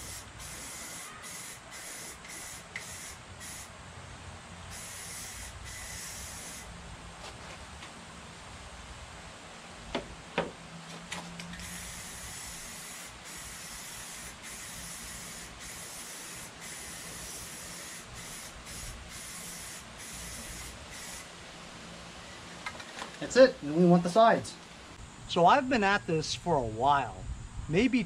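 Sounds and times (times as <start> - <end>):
spray-paint can hissing: 0.0 - 3.7, 4.7 - 6.7, 11.6 - 21.3.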